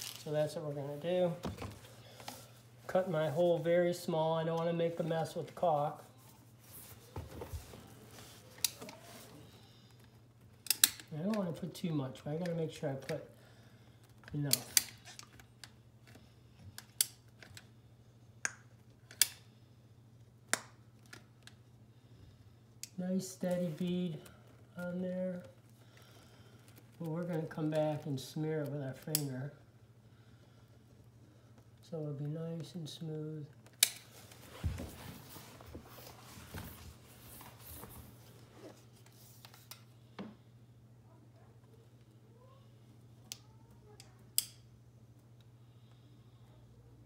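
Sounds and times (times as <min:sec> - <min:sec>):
clothing rustle: 0:00.0 - 0:09.6, 0:34.0 - 0:39.7
steady low hum: 0:00.0 - 0:47.0.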